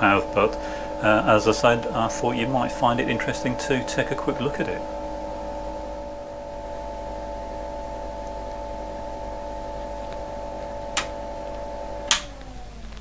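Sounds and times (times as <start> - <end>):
power supply humming: 0.0 - 13.0
switch clicking: 9.9 - 13.0.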